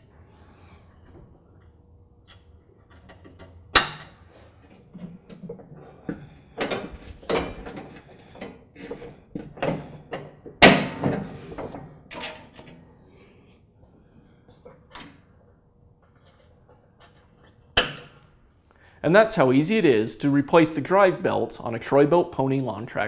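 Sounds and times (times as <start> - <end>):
rattles and thumps: 4.7 - 12.8
metal hardware clanks and knocks: 6.1 - 8.6.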